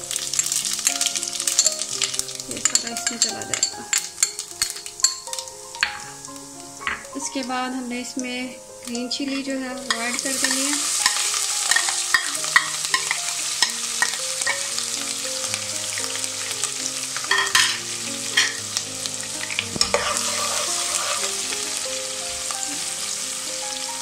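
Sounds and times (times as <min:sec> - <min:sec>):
sharp crackles and clicks: 0:00.0 - 0:07.6, 0:08.2 - 0:22.8
chillies sizzling in hot oil: 0:00.0 - 0:24.0
metal spatula stirring in pot: 0:01.2 - 0:05.3, 0:08.9 - 0:14.8, 0:17.2 - 0:18.6, 0:19.4 - 0:21.7.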